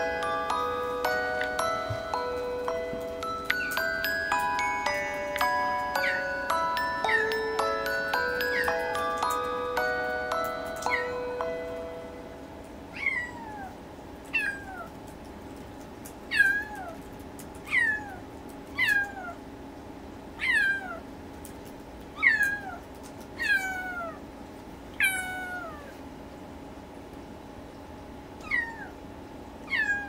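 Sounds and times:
kitten meowing: 13.0s - 13.7s, 28.4s - 28.9s, 29.7s - 30.0s.

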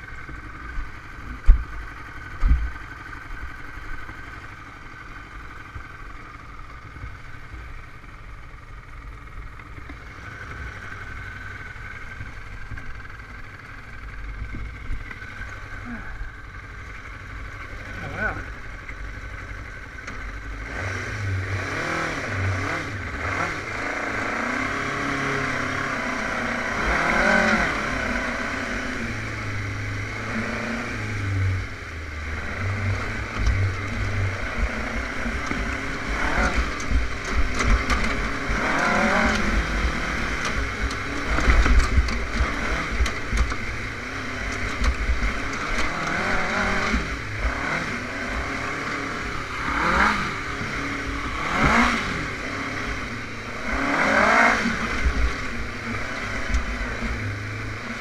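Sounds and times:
buggy thudding over rough ground: 0.0s - 7.7s, 26.4s - 58.0s
dune buggy engine revving: 0.0s - 58.0s.

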